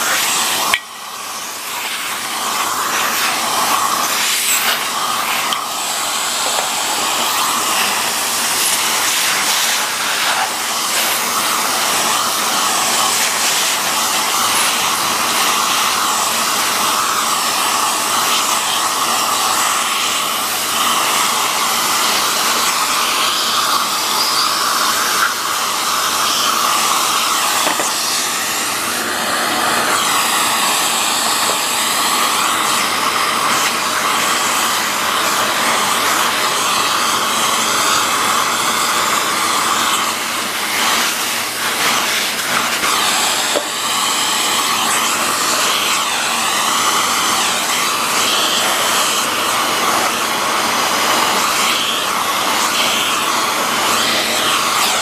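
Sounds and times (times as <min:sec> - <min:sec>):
vacuum cleaner running: 0:00.0 - 0:55.0.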